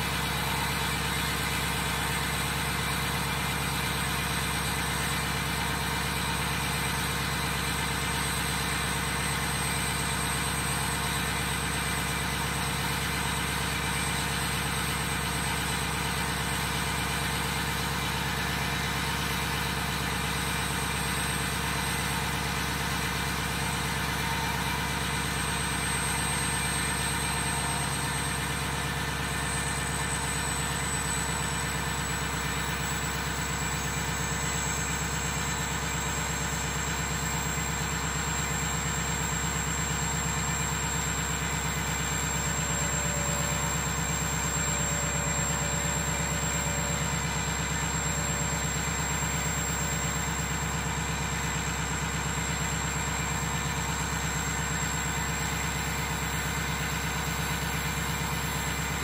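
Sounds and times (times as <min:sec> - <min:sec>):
diesel engine idling: 0:00.0 - 0:59.0
high-pitched whine: 0:00.0 - 0:59.0.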